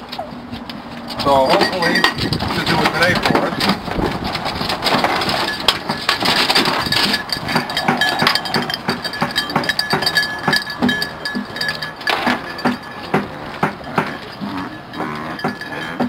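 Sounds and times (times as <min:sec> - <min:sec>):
small collar bells jingling: 0:01.1 - 0:03.8, 0:04.9 - 0:16.0.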